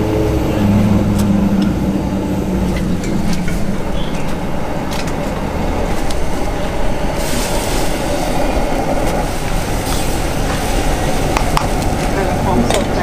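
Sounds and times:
gas burner rushing: 0.0s - 13.0s
bright hiss: 5.9s - 12.5s.

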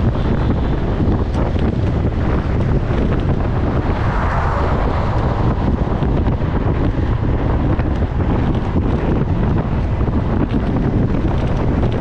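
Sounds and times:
low vehicle rumble: 0.0s - 12.0s
wind rushing over microphone: 0.0s - 12.0s.

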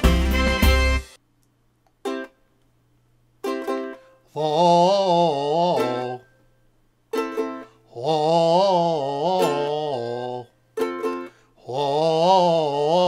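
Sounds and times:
ukulele chords strummed: 0.0s - 1.1s, 2.0s - 2.4s, 3.4s - 6.4s, 7.1s - 13.0s
man singing: 4.3s - 6.3s, 7.9s - 10.6s, 11.6s - 13.0s.

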